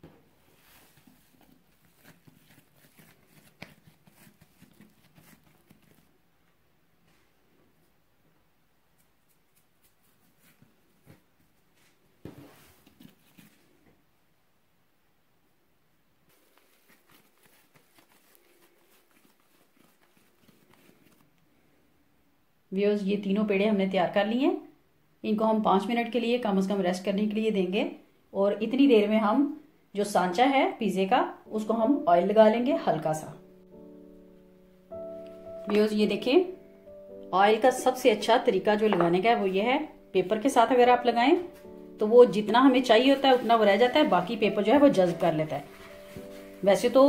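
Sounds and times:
hands squishing pizza dough: 0:00.6 - 0:06.1, 0:16.3 - 0:21.2.

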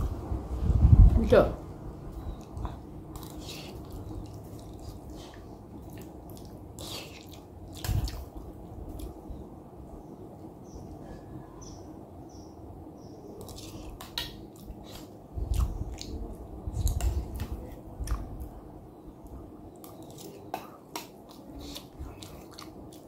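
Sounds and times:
chewing and mouth clicks: 0:02.3 - 0:09.2, 0:13.4 - 0:18.5, 0:19.8 - 0:23.0.

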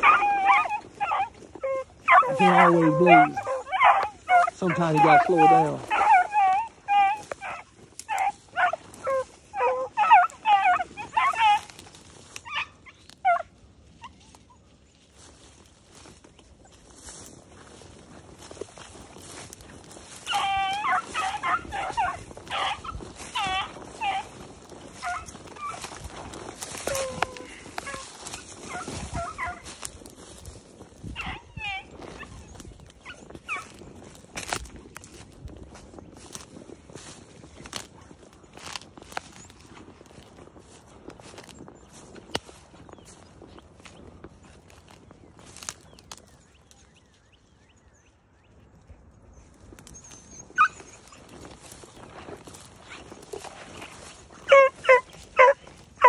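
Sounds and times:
dog barking: 0:00.0 - 0:08.8, 0:09.6 - 0:11.6, 0:54.5 - 0:55.6
hounds baying: 0:00.0 - 0:46.9, 0:48.8 - 0:56.0
rustling: 0:14.3 - 0:46.3, 0:49.7 - 0:56.0.

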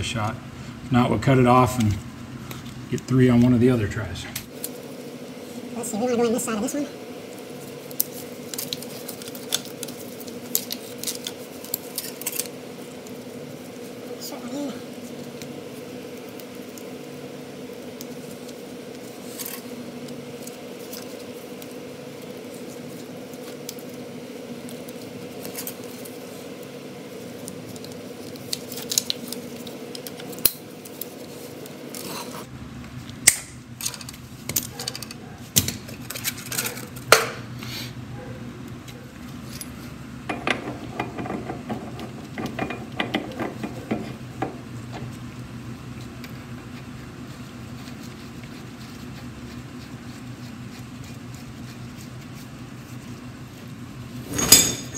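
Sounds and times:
steady hum: 0:00.0 - 0:54.9
metal parts clinking: 0:54.3 - 0:54.9.

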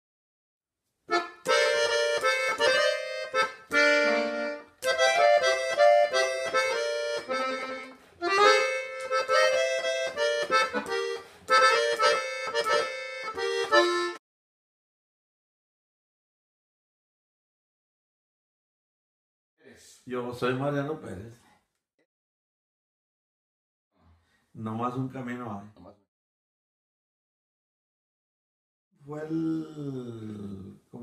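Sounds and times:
button accordion melody: 0:01.1 - 0:14.2.

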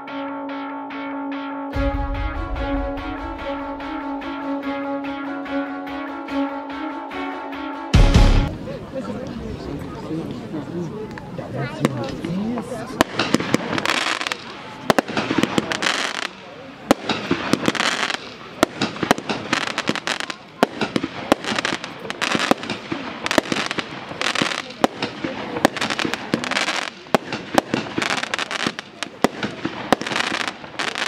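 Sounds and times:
firework cracks: 0:12.9 - 0:31.0.

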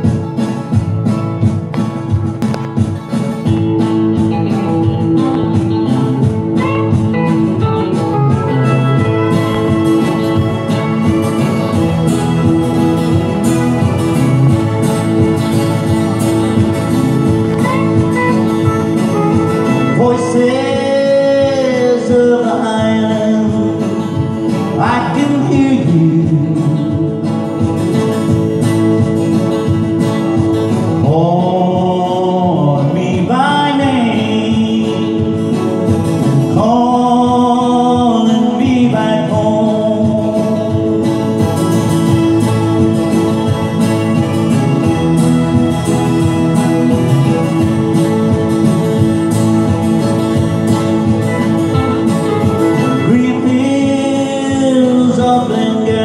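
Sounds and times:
acoustic guitar strumming: 0:00.0 - 0:56.0
man singing: 0:17.6 - 0:27.9, 0:30.8 - 0:41.5, 0:52.6 - 0:56.0.

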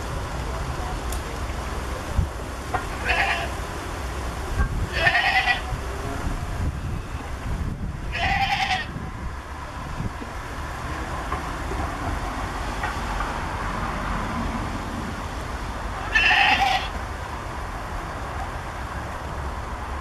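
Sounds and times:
goat bleating: 0:03.0 - 0:03.6, 0:04.9 - 0:05.7, 0:08.1 - 0:08.9, 0:16.0 - 0:17.0.

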